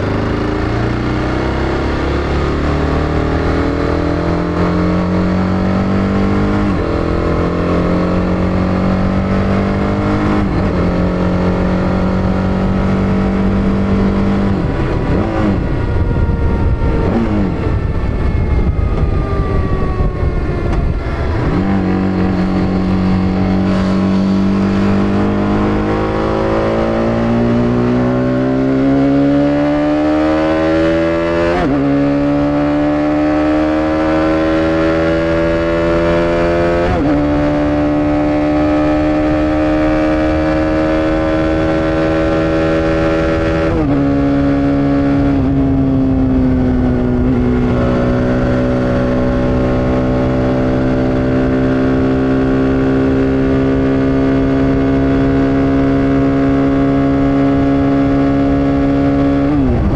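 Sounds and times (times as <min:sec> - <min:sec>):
motorcycle engine accelerating: 0:00.0 - 0:59.9.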